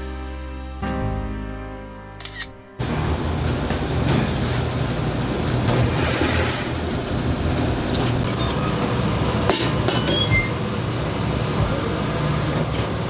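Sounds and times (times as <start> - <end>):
rumbling kitchen noise: 2.8 - 13.0
short high squeaks: 8.2 - 8.9, 9.6 - 10.6.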